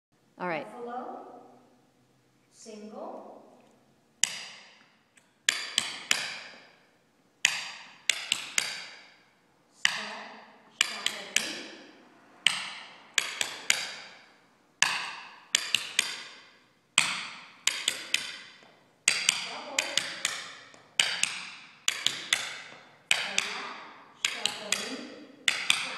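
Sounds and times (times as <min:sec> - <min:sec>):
tap shoes on wooden floor: 0:17.0 - 0:25.9.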